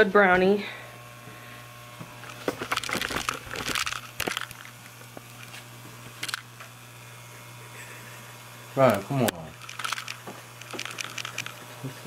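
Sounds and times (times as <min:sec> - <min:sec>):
steady low hum: 0:00.0 - 0:12.0
crinkling rustling handling noise: 0:02.3 - 0:06.4, 0:09.5 - 0:11.7.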